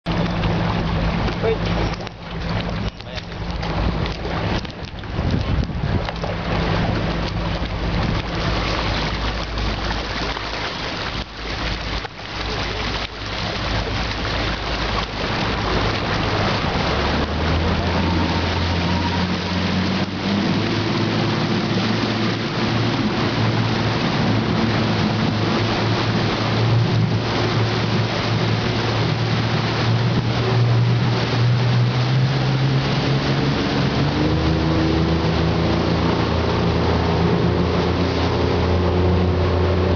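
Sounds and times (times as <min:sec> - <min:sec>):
boat engine droning: 0:00.0 - 0:39.9
water rushing past hull: 0:00.0 - 0:39.9
wind buffeting microphone: 0:00.1 - 0:12.0.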